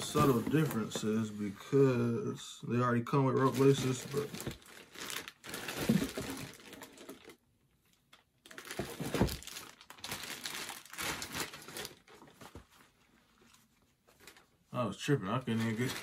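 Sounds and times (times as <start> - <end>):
plastic bag crinkling: 3.3 - 7.4, 8.1 - 12.6, 15.4 - 16.0.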